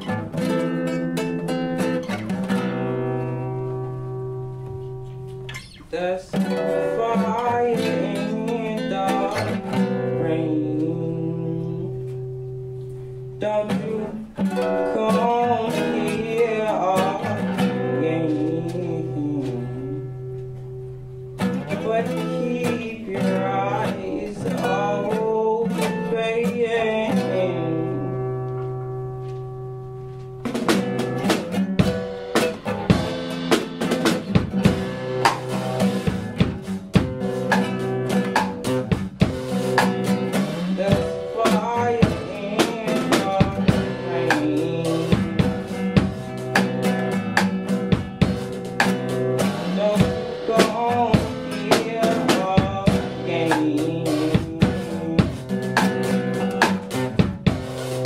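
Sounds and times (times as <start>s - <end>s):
drum kit beat: 0.0s - 58.0s
strummed acoustic guitar: 0.0s - 58.0s
person singing: 5.5s - 12.4s, 13.4s - 20.4s, 21.4s - 28.7s, 39.8s - 47.0s, 49.4s - 57.2s.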